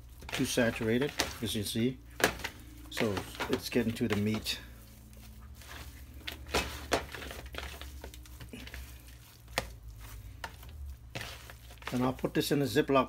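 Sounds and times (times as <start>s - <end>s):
hands squishing meat in marinade: 0.0s - 12.9s.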